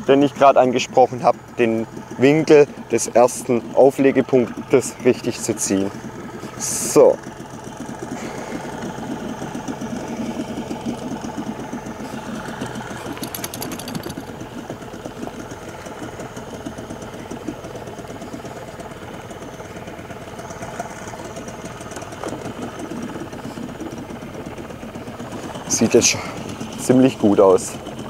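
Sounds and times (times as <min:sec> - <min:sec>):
small boat motor chugging: 0:00.0 - 0:28.0
rapid clicking: 0:12.3 - 0:18.8.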